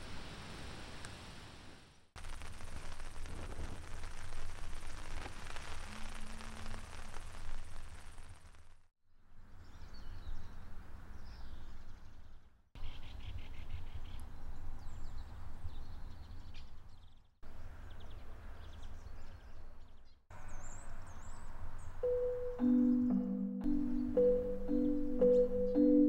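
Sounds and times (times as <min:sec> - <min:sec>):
wind rumbling on microphone: 0:00.0 - 0:08.4
small birds chirping: 0:09.6 - 0:26.0.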